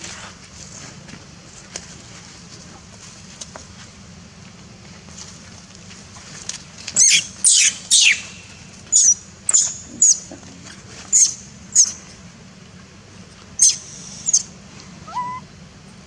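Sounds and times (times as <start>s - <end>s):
baby monkey squealing: 7.0s - 10.3s, 11.1s - 12.0s, 13.6s - 15.5s.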